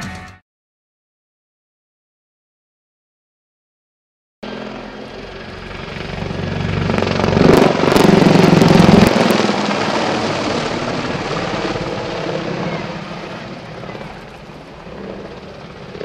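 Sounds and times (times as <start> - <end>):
helicopter flying past: 4.4 - 16.0.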